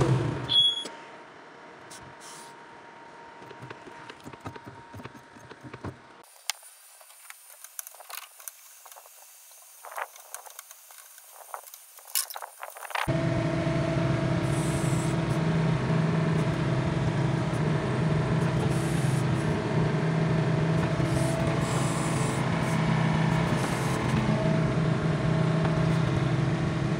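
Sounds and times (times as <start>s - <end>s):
excavator diesel engine running: 0.0s - 0.9s, 12.9s - 26.9s.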